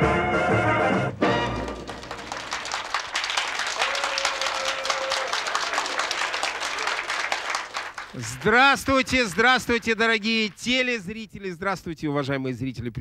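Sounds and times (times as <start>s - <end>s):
audience applauding: 1.3s - 11.1s.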